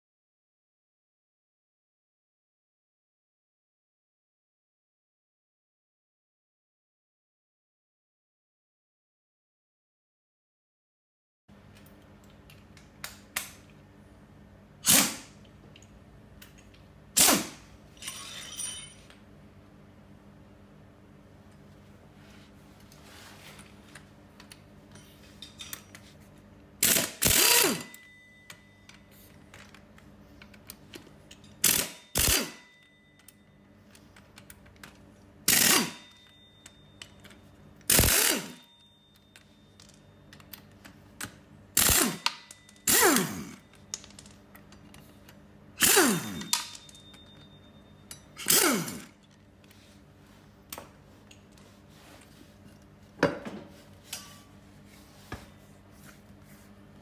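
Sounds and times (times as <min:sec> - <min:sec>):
power tool bursts: 0:14.8 - 0:15.4, 0:17.2 - 0:17.6, 0:26.8 - 0:28.0, 0:31.6 - 0:32.7, 0:35.5 - 0:36.1, 0:37.9 - 0:38.7, 0:41.8 - 0:43.6, 0:45.8 - 0:46.7, 0:48.4 - 0:49.2.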